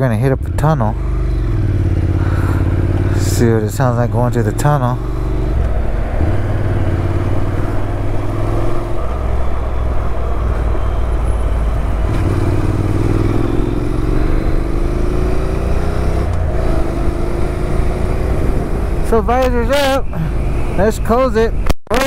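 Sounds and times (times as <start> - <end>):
motorcycle engine: 0.0 - 21.2
wind rumble: 0.0 - 21.7.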